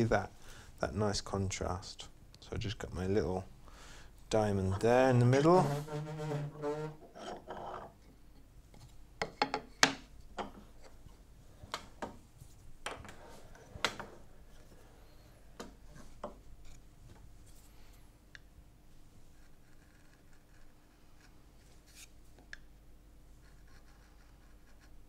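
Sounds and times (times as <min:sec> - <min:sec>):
faint rubbing: 0:04.8 - 0:07.8.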